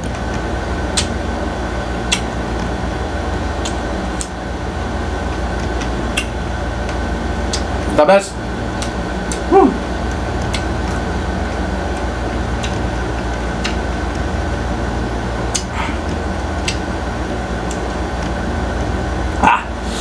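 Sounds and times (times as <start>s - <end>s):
mechanical room hum: 0.0s - 20.0s
faint chewing clicks: 3.6s - 4.4s, 5.3s - 7.8s, 8.8s - 14.2s.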